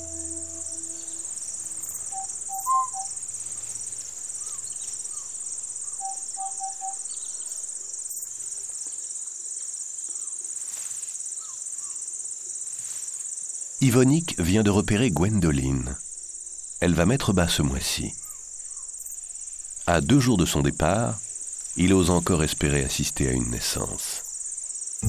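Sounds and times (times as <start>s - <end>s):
soft bird calls: 0.0s - 3.6s, 4.3s - 7.6s
high-pitched insect chorus: 0.0s - 25.0s.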